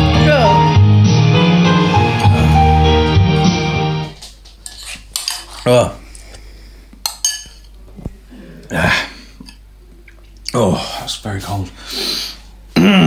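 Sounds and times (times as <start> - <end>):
person grunting: 2.1 - 3.1, 8.3 - 9.2, 12.8 - 13.0
spoon scraping ceramic bowl: 4.6 - 5.6.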